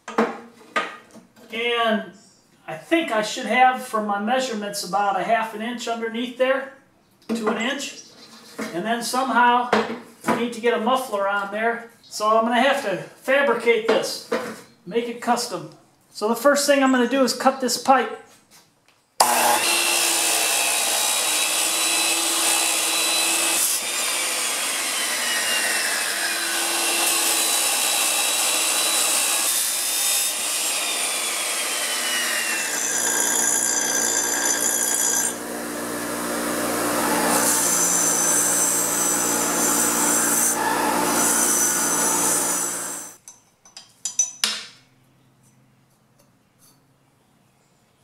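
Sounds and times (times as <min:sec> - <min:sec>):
chop saw grinding metal pipe: 0:19.2 - 0:43.2.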